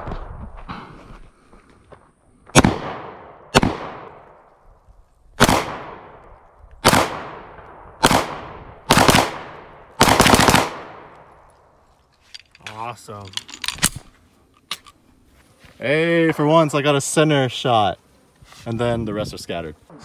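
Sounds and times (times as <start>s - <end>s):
pistol shots with echo: 2.5s - 4.2s, 5.4s - 6.2s, 6.8s - 11.2s.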